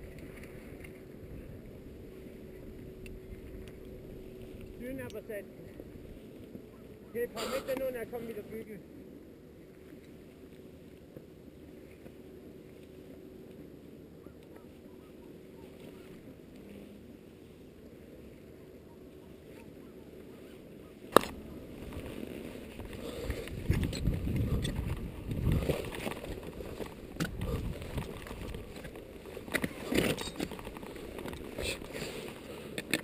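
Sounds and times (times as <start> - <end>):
clothing and gear scraping rock: 21.6 - 33.0.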